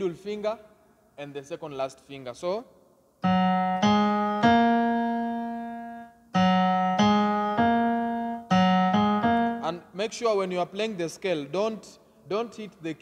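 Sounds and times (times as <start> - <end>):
electronic keyboard piano notes: 3.2 - 9.9.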